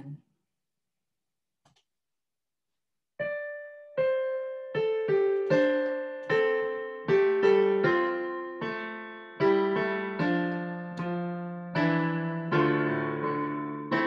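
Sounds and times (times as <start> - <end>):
slow digital piano music: 3.2 - 14.0.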